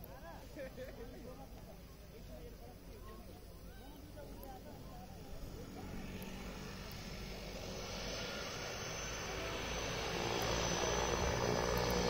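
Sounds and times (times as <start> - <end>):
turboprop airplane taking off: 2.2 - 12.0.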